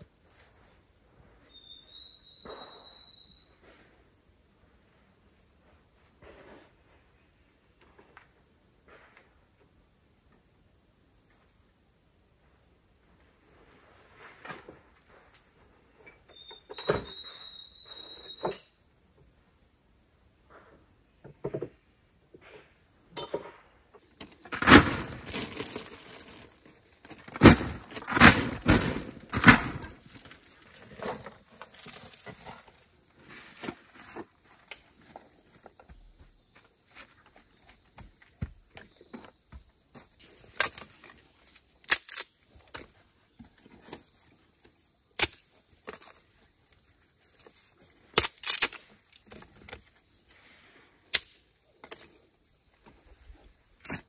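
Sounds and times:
high-pitched insect trill: 0:01.5 - 0:03.6, 0:16.3 - 0:18.8
rustling and scraping: 0:05.6 - 0:07.1, 0:13.2 - 0:16.4, 0:22.4 - 0:44.8.

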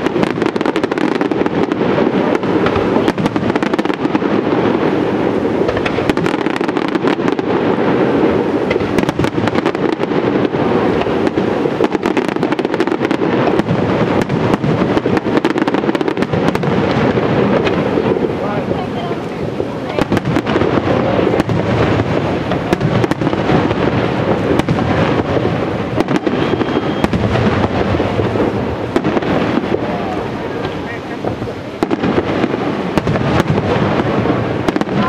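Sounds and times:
fireworks bangs and crackles: 0:00.0 - 0:35.0
continuous rumble: 0:07.5 - 0:35.0.

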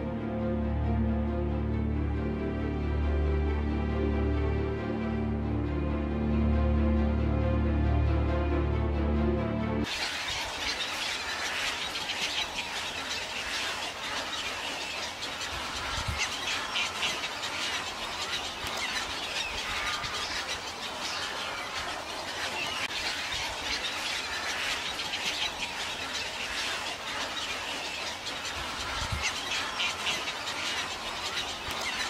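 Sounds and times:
flock of birds chirping: 0:09.8 - 0:32.0.

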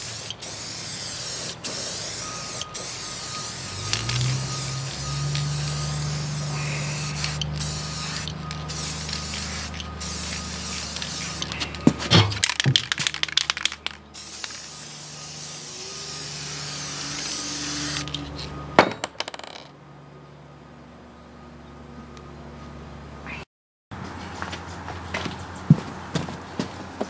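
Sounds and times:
spray paint can hissing: 0:00.0 - 0:18.3
spray can mixing ball rattling: 0:06.4 - 0:18.1.

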